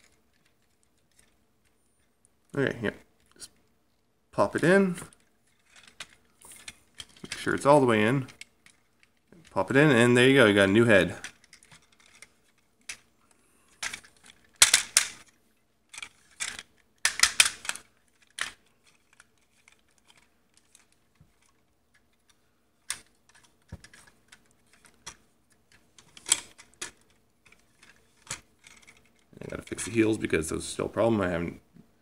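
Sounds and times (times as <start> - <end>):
plastic toy parts clicking: 5.1 - 7.5, 8.2 - 9.6, 11.2 - 13.1, 13.7 - 29.9.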